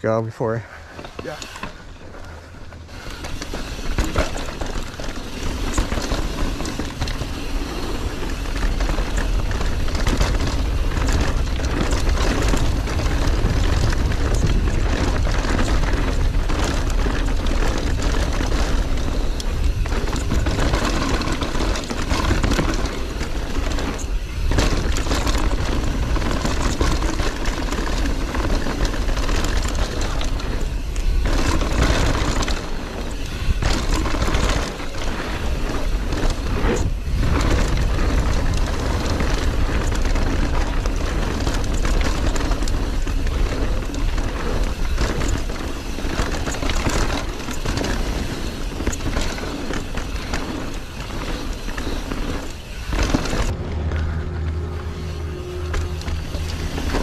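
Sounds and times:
bike tyre noise on dirt: 0:00.0 - 0:57.0
bike rattling and knocking: 0:00.8 - 0:57.0
wind rushing over microphone: 0:01.9 - 0:57.0.

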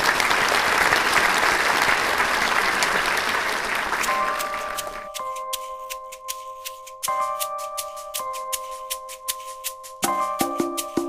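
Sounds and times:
applause: 0:00.0 - 0:05.1
music with held chord and ticks: 0:04.0 - 0:11.0.

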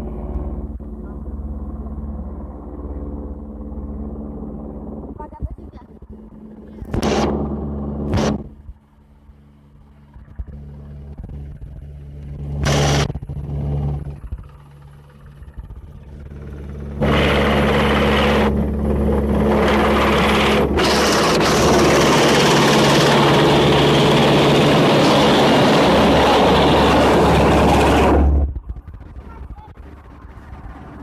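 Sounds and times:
helicopter rotor drone: 0:00.0 - 0:31.0
rotor downwash on microphone: 0:04.8 - 0:08.6, 0:10.4 - 0:14.4, 0:17.0 - 0:31.0.

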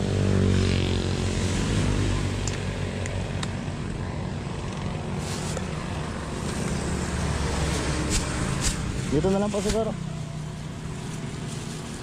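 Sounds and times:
plastic bag rustling: 0:05.1 - 0:12.0.

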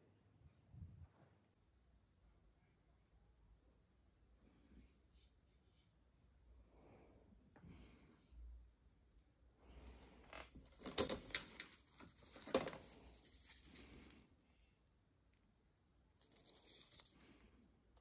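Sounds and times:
rustling and crackling handling noise: 0:09.9 - 0:14.2, 0:16.2 - 0:17.4.

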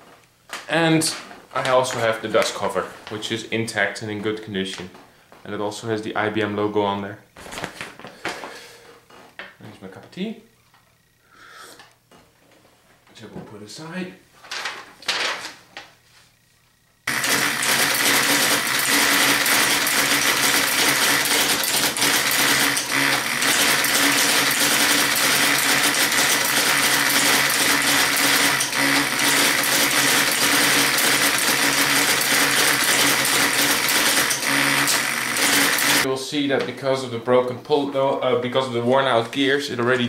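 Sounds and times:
typewriter motor humming: 0:17.1 - 0:36.1
typewriter keys clattering: 0:17.2 - 0:36.0.

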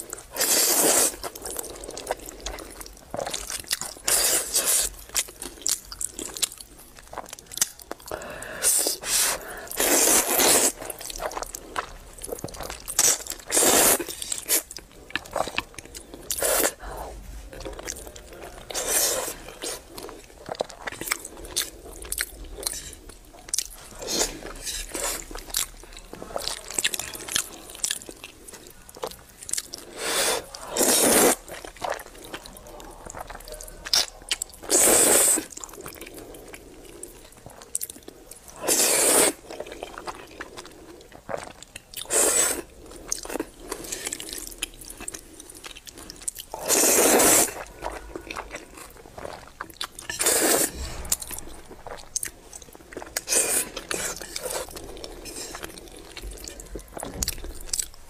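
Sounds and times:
chewing: 0:00.0 - 0:58.0
person slurping noodles: 0:00.4 - 0:01.3, 0:08.5 - 0:11.0, 0:13.0 - 0:14.7, 0:18.7 - 0:20.0, 0:29.8 - 0:31.5, 0:34.6 - 0:35.5, 0:38.6 - 0:39.5, 0:42.0 - 0:42.7, 0:46.6 - 0:47.7, 0:50.0 - 0:52.0, 0:53.0 - 0:56.0.

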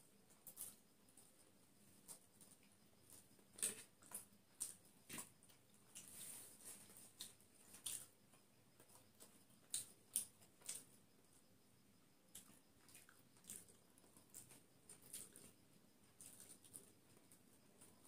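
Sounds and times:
person chewing and smacking: 0:02.1 - 0:06.2, 0:06.9 - 0:11.0, 0:12.3 - 0:17.9.

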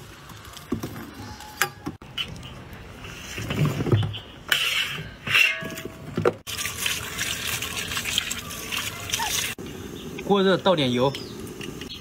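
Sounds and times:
water sloshing and dripping: 0:06.3 - 0:09.6.

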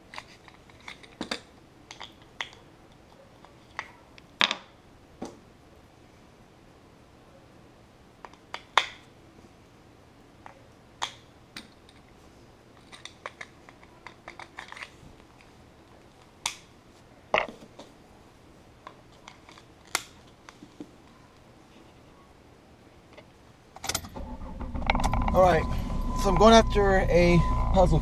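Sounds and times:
metal carabiner clipping: 0:00.0 - 0:04.7, 0:12.8 - 0:15.5.

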